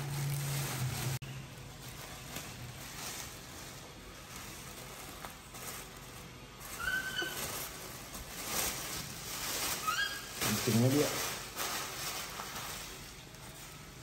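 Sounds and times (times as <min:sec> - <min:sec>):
plastic bag rustling: 0:00.0 - 0:14.0
short high-pitched squeak: 0:06.8 - 0:07.5.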